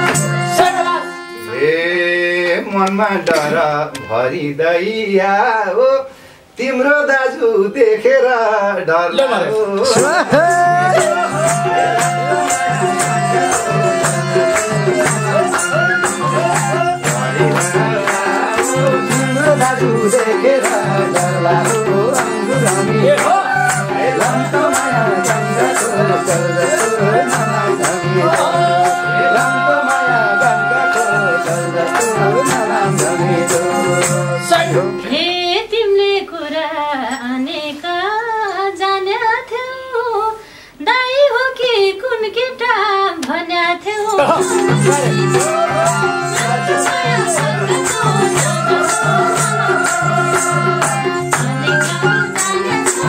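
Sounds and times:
harmonium chords: 0.0 - 4.5, 9.1 - 35.7, 44.1 - 53.0
hand drum beat: 9.8 - 34.9, 44.1 - 53.0
woman singing: 35.0 - 53.0.

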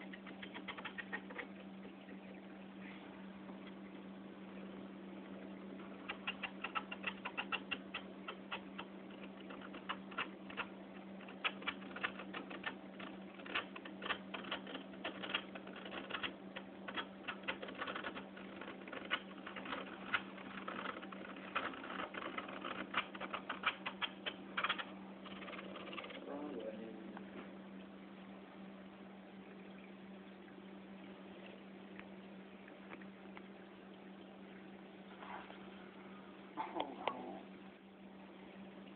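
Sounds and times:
steady low hum: 0.0 - 38.9
scraper clicking across glass: 6.1 - 26.2.

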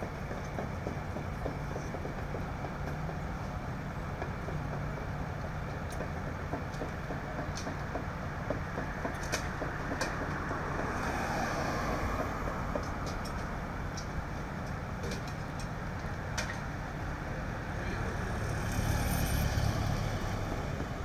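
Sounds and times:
light clicks and knocks: 4.2 - 11.0, 11.8 - 16.7.

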